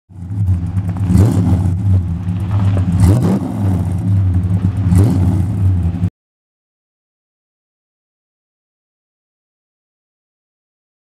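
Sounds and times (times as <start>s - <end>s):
car engine revving: 0.1s - 6.1s.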